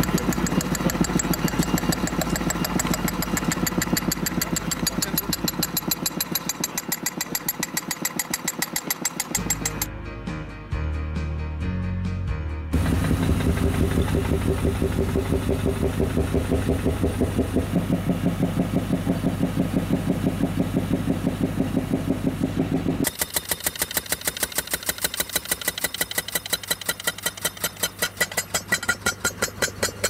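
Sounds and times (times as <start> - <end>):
pneumatic piercing tool hammering: 0.0 - 9.9, 23.0 - 30.0.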